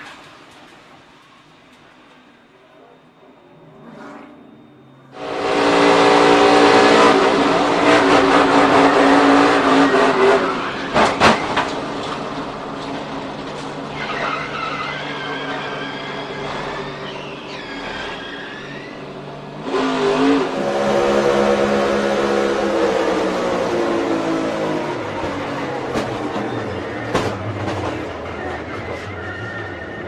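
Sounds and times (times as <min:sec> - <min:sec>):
race car engine running hard: 0:05.1 - 0:17.4, 0:18.2 - 0:29.9
car crash impacts: 0:10.7 - 0:13.8
tyres squealing: 0:13.7 - 0:19.3.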